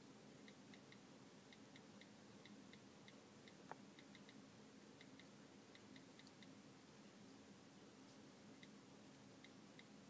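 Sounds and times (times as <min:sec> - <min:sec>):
on-screen keyboard clicks: 0:03.5 - 0:04.4, 0:05.0 - 0:06.5.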